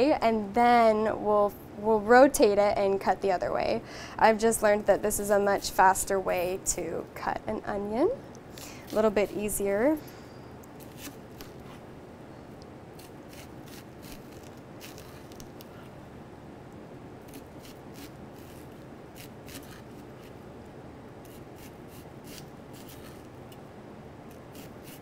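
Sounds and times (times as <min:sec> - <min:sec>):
knife cutting onion on cutting board: 0:13.0 - 0:15.7, 0:17.3 - 0:20.4, 0:21.2 - 0:23.2, 0:24.3 - 0:25.0.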